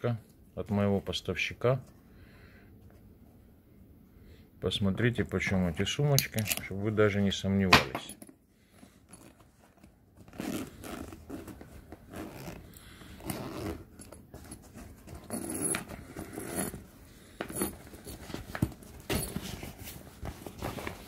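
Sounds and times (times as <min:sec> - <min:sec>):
zipper pulled open: 0:09.1 - 0:16.9.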